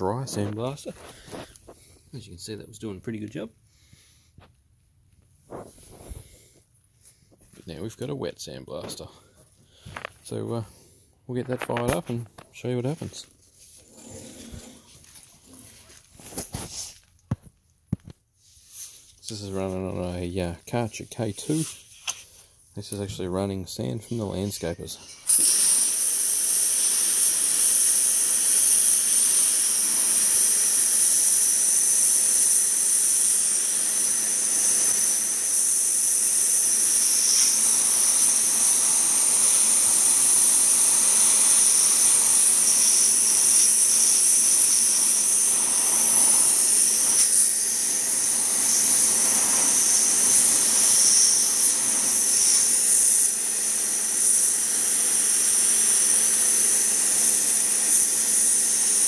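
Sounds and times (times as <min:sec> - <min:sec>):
pressure washer jet hissing: 0:24.8 - 0:59.0.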